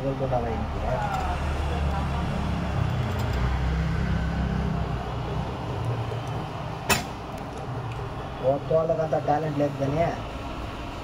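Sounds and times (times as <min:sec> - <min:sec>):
workshop rumble: 0:00.0 - 0:11.0.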